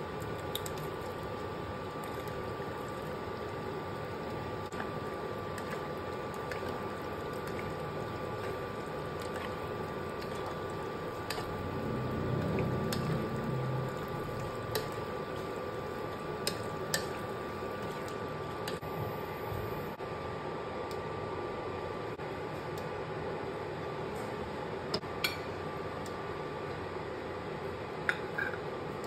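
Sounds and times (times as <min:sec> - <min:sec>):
fan hum: 0:00.0 - 0:29.0
sauce squelching while stirred: 0:01.9 - 0:18.2.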